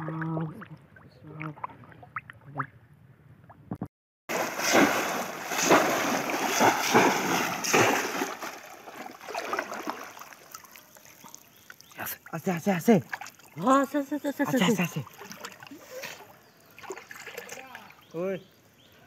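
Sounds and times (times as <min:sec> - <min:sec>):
water splashing: 0:04.3 - 0:18.1.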